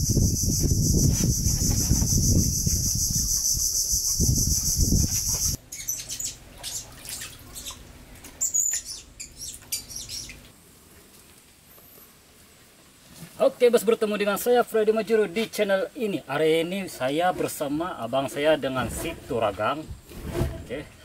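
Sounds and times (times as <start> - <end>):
high-pitched insect drone: 0.0 - 5.6.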